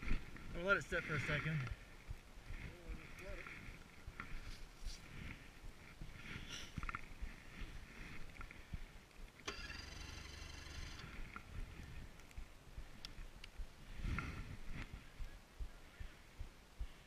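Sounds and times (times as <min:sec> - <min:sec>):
rustling on microphone: 0:00.0 - 0:09.4, 0:11.0 - 0:17.0
snowmobile electric starter whirring: 0:09.4 - 0:11.4.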